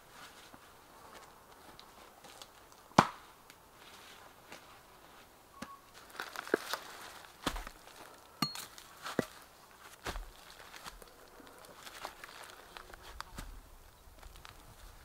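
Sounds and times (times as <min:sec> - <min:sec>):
rustling in undergrowth: 0:00.0 - 0:15.0
sharp wood crack: 0:02.4 - 0:03.6, 0:06.0 - 0:13.6.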